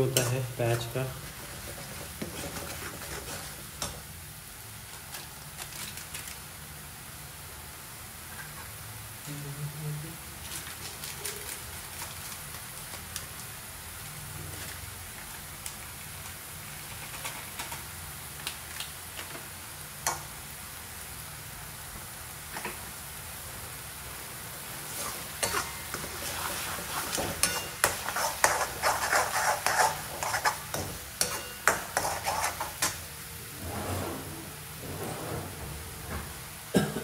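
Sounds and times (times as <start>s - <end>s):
paste frying in oil: 0.0s - 33.6s
spatula scraping a pan: 0.1s - 4.0s, 24.8s - 35.5s.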